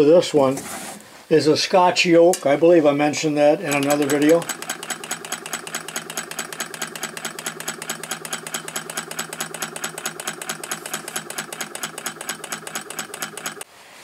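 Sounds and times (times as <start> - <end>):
model engine ticking: 3.7 - 13.6.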